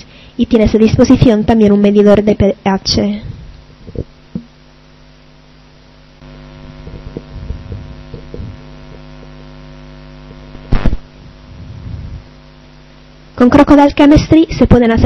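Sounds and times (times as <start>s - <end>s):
electrical mains hum: 0.0s - 15.0s
loud sharp thump: 10.7s - 11.0s.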